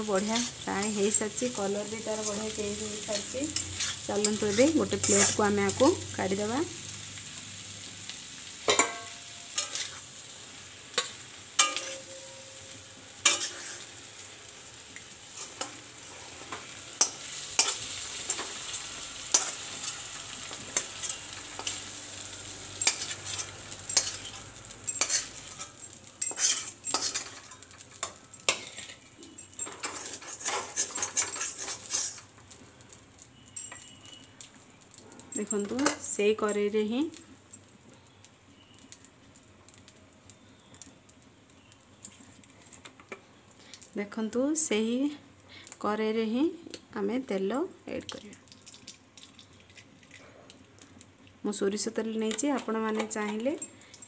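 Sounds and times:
prawns sizzling in hot oil: 0.0 - 54.0
metal spatula scraping a pan: 0.2 - 5.9, 8.7 - 10.1, 10.9 - 14.0, 15.3 - 21.9, 22.8 - 32.3.

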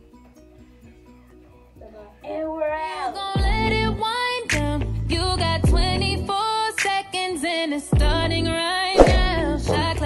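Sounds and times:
song with sung vocals and beat: 2.7 - 10.0
deep kick drum: 3.4 - 3.6, 5.7 - 5.9, 8.0 - 8.2, 9.0 - 9.4.

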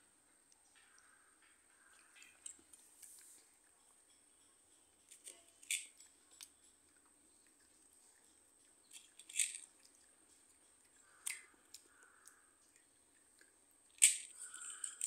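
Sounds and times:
candies rattling in steel bowl: 9.1 - 9.6, 14.0 - 15.0.

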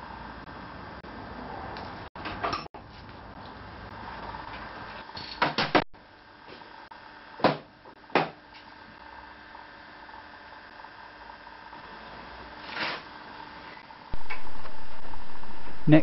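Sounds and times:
sharp knocks on workbench: 7.4 - 8.4.

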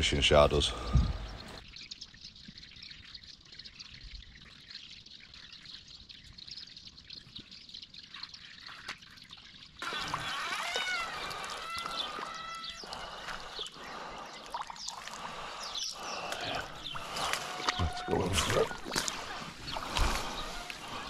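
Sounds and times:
river water trickling and lapping: 0.0 - 21.0
high chirping calls: 9.8 - 21.0.

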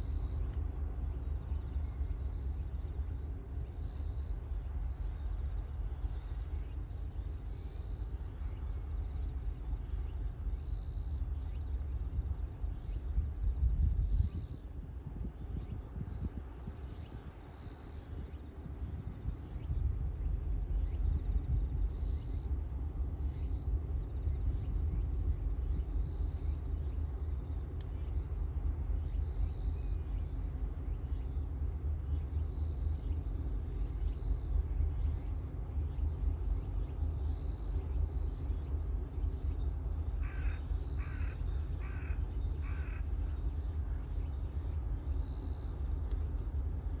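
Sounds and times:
insect chirring: 0.0 - 47.0
crow cawing: 40.2 - 43.0.

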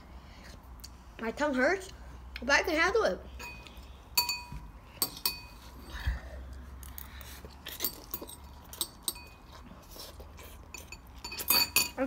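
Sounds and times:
metal chopsticks clinking on bowl: 10.8 - 12.0.

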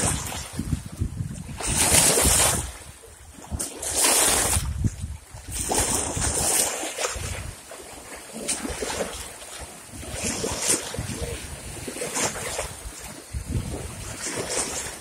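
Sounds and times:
small waves splashing against rocks: 0.0 - 15.0.

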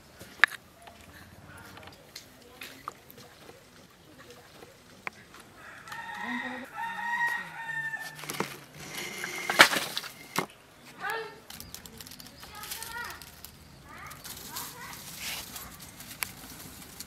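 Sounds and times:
dry palm fronds rustling: 0.0 - 17.0
rooster crowing: 5.5 - 9.3.

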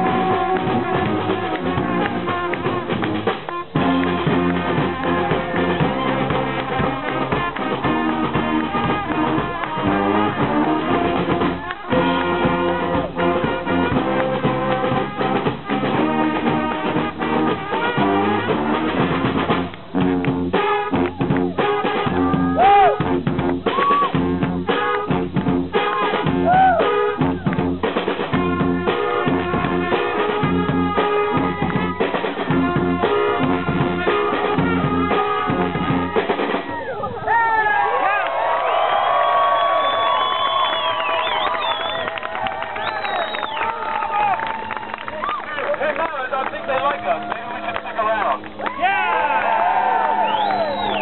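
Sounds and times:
bass drum: 0.0 - 36.7
brass marching band playing: 0.0 - 36.8, 38.7 - 51.0
cymbal and snare drums: 0.0 - 36.8.

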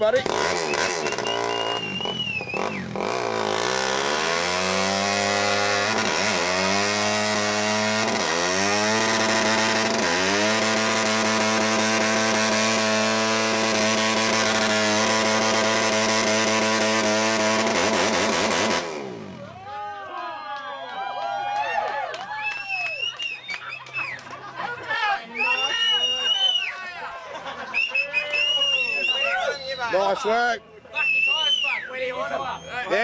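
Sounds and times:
motorcycle engine revving: 0.0 - 19.6.

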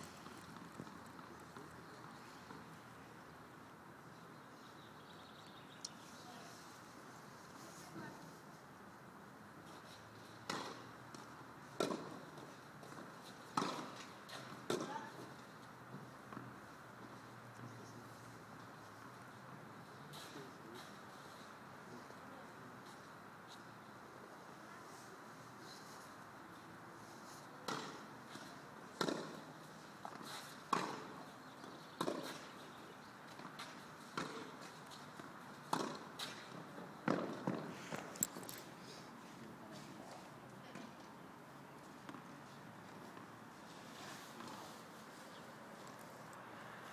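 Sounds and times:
rackets striking tennis ball: 10.4 - 15.4, 27.6 - 32.6, 33.3 - 38.7.

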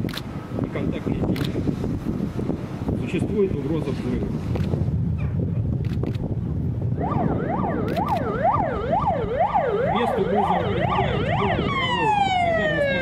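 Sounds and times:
low rumble: 1.4 - 9.6
fire engine siren: 6.8 - 13.0.

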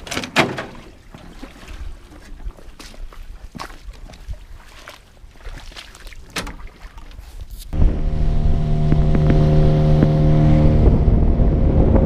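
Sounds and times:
rushing water: 0.0 - 10.9
wind on microphone: 7.4 - 12.0
outboard motor running: 7.8 - 12.0.

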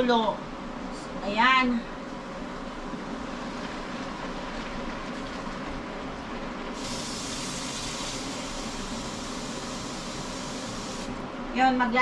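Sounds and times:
food hissing in a wok: 6.8 - 11.2.

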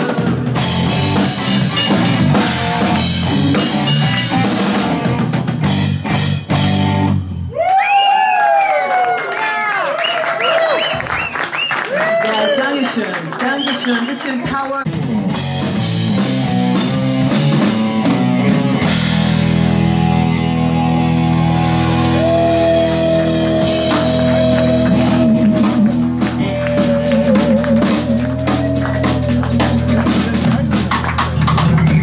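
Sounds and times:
drum kit with cymbal washes: 0.0 - 7.4, 14.5 - 32.0
electric guitar chords: 0.0 - 7.5, 14.9 - 32.0
bass guitar: 0.0 - 7.8, 14.4 - 32.0.

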